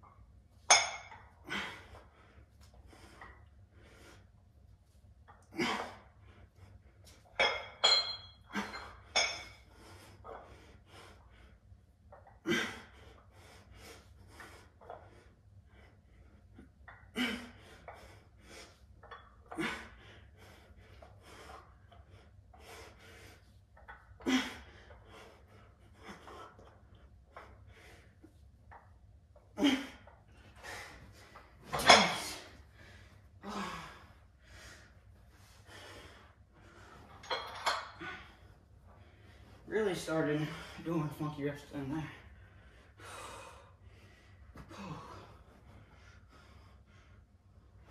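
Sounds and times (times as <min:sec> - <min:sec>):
metallic clinks: 0:07.4 - 0:09.5.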